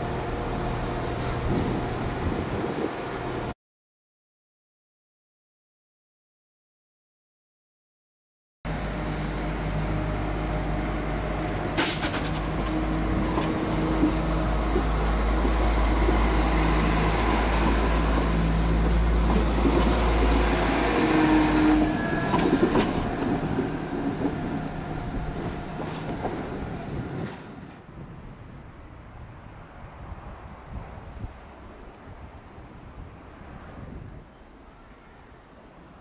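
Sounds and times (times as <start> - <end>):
diesel train engines running: 0.0 - 3.5, 8.7 - 27.8.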